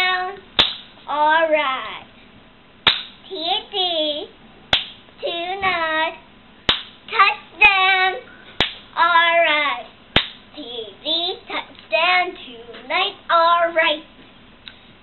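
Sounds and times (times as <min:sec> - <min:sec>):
girl chanting a cheer: 0:00.0 - 0:00.4, 0:01.1 - 0:02.1, 0:05.2 - 0:06.2, 0:07.1 - 0:08.3, 0:08.9 - 0:09.9, 0:10.6 - 0:14.1
hand claps: 0:00.6 - 0:00.9, 0:02.9 - 0:03.2, 0:04.7 - 0:05.0, 0:06.7 - 0:07.0, 0:08.6 - 0:08.8, 0:10.2 - 0:10.4.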